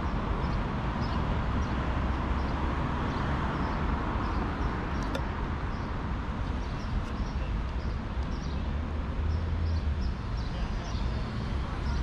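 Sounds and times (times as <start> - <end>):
low rumble of traffic: 0.0 - 12.0
small birds chirping: 0.0 - 12.0.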